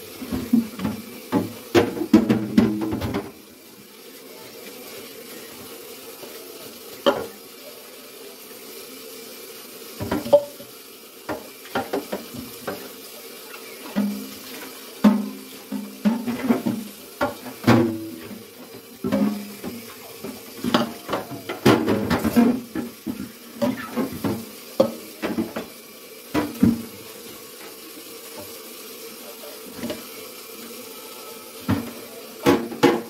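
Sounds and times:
tap running into sink: 0:00.2 - 0:03.5, 0:07.0 - 0:07.4, 0:10.0 - 0:13.0, 0:13.6 - 0:28.6, 0:29.7 - 0:30.2, 0:31.6 - 0:33.0
plastic drawers knocking on sink: 0:00.3 - 0:03.4, 0:19.0 - 0:25.7, 0:31.7 - 0:33.0.

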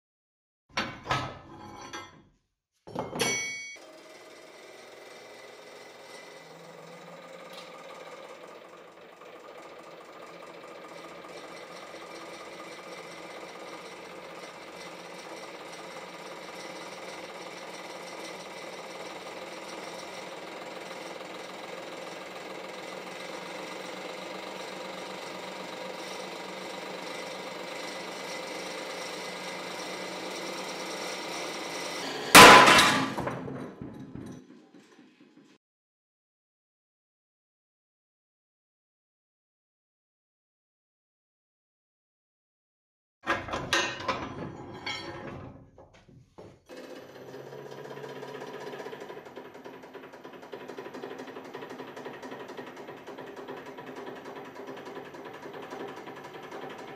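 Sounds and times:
metallic ringing: 0:03.2 - 0:03.8
hydraulic press humming: 0:03.8 - 0:33.2.

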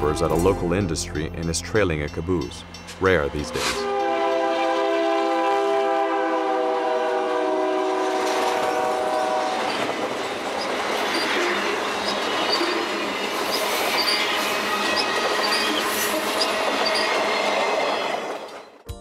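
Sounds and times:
locomotive chime horn: 0:00.0 - 0:01.4, 0:03.4 - 0:09.8.

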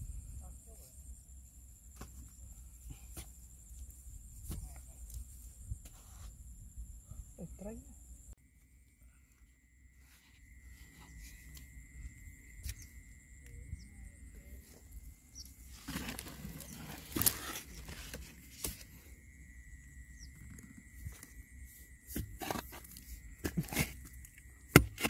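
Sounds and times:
wooden stick digging into dry mud: 0:22.1 - 0:25.0.

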